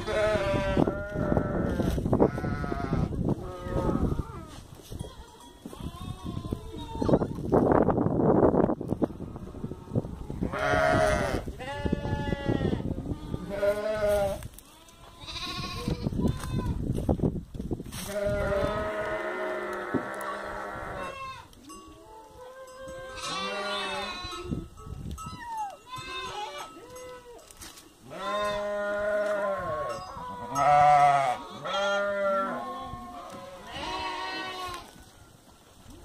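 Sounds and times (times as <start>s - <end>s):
goats and sheep bleating: 0.0s - 7.4s, 9.1s - 16.8s, 18.0s - 35.1s.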